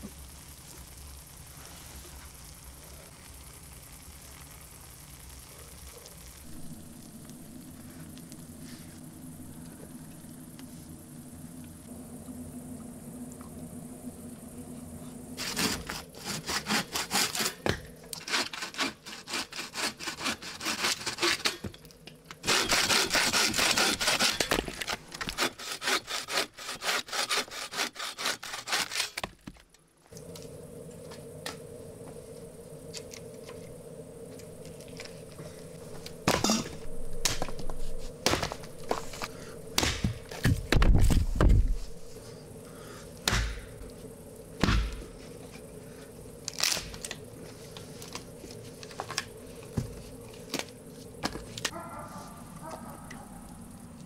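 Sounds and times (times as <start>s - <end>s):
hand saw cutting branch: 15.4s - 21.6s, 22.4s - 29.2s.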